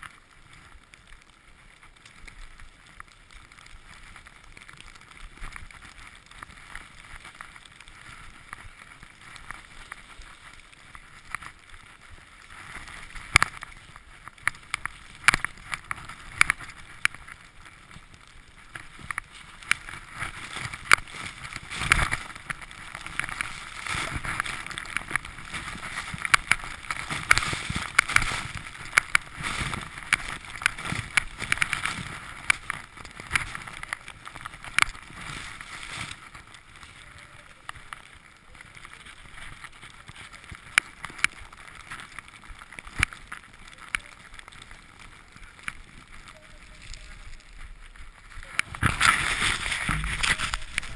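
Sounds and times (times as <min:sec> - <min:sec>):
skis hissing through powder snow: 0:14.6 - 0:33.8, 0:44.8 - 0:50.9.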